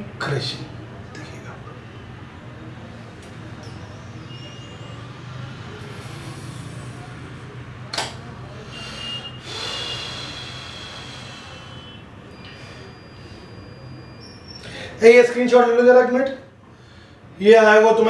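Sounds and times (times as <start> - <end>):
sharp click: 7.9 - 8.2.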